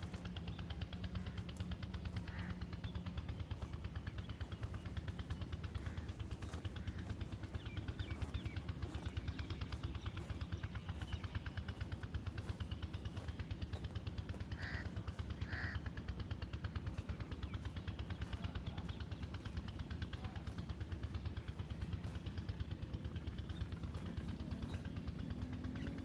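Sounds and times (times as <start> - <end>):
fast low pulsing: 0.0 - 26.0
crow cawing: 1.2 - 2.8, 5.8 - 7.2, 14.4 - 16.3.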